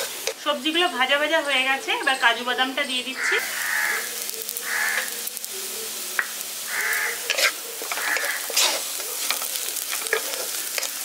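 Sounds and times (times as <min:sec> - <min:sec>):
vegetables sizzling in hot oil: 0:00.0 - 0:11.0
spatula scraping a pan: 0:06.8 - 0:11.0.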